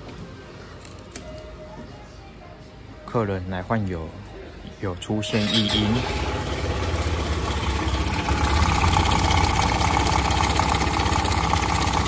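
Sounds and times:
scooter engine idling with rattle: 5.3s - 12.0s.

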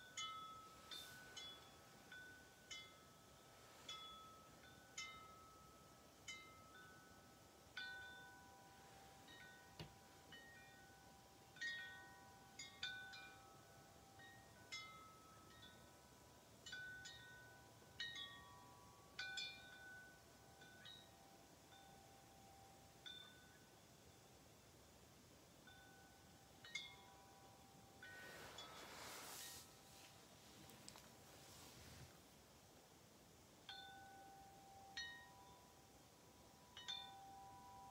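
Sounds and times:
wind chimes ringing: 0.0s - 24.4s, 25.5s - 31.1s, 33.6s - 37.9s
soft rushing noise: 0.4s - 2.7s, 28.0s - 32.4s.

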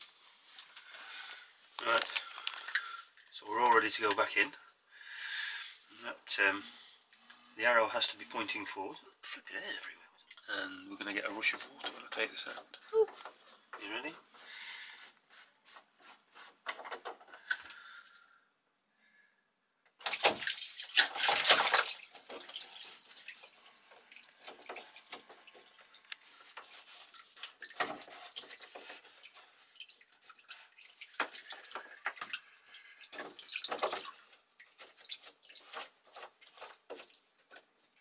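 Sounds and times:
water splashing and dripping: 20.0s - 38.0s.

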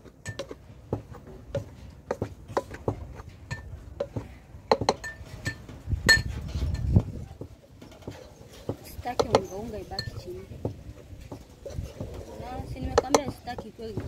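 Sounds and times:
spoon scraping a metal pot: 11.5s - 13.2s.

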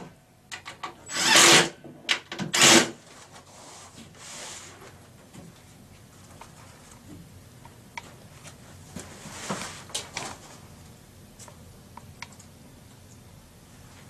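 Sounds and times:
rustling scrape: 3.0s - 5.0s, 9.0s - 10.7s.

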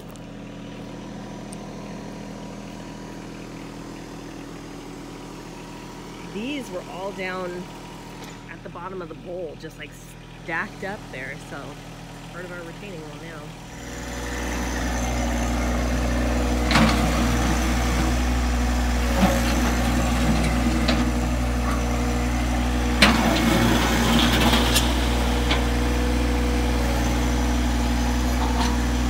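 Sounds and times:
tractor diesel engine running: 0.0s - 29.0s.

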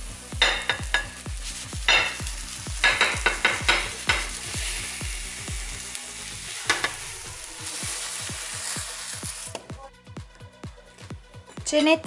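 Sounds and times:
faint sizzle: 0.0s - 9.6s.

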